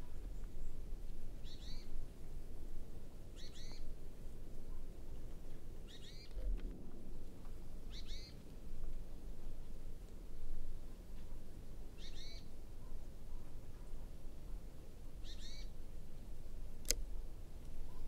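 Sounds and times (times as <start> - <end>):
small bird calling: 1.4 - 1.9, 3.4 - 3.9, 5.9 - 6.4, 7.9 - 8.4, 12.0 - 12.5, 15.2 - 15.8.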